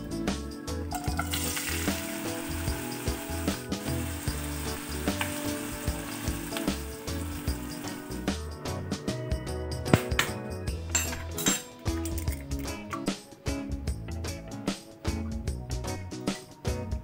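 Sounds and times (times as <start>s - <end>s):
background music with steady beat: 0.0s - 17.0s
onions sizzling in hot oil: 1.0s - 8.3s.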